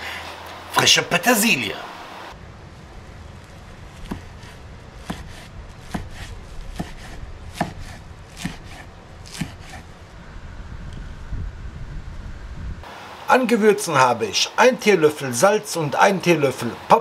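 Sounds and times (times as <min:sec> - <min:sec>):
knife chopping on wooden board: 0:04.0 - 0:09.8.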